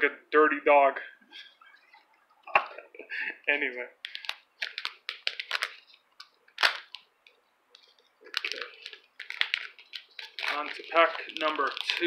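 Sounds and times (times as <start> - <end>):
cards clicking and snapping: 4.0 - 7.1.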